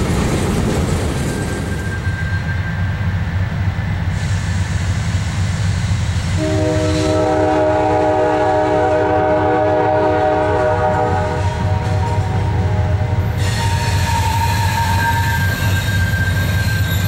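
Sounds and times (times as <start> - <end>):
train rumbling: 0.0 - 17.0
locomotive air horn chord: 6.4 - 15.8.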